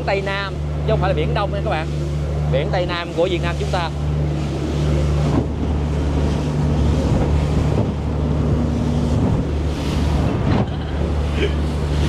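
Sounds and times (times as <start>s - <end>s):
boat engine droning: 0.0s - 12.0s
water washing around hull: 0.0s - 12.0s
wind on microphone: 4.9s - 12.0s.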